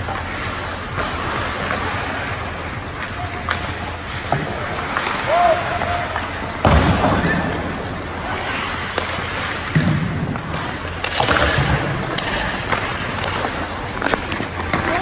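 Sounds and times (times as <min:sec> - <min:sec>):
skates scraping on ice: 0:00.0 - 0:15.0
sharp knocks of puck and sticks: 0:09.7 - 0:14.9.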